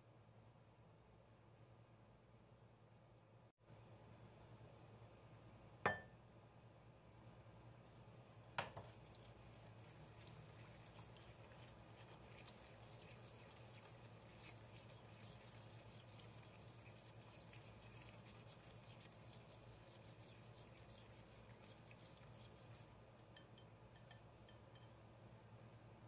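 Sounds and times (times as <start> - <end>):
low steady hum: 0.0 - 26.0
whisk in liquid in bowl: 8.6 - 24.9.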